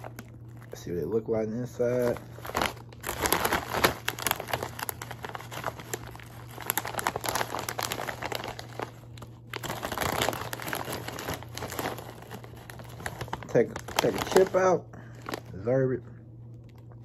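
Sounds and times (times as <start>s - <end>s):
foil chip bag crinkling: 0.0s - 15.9s.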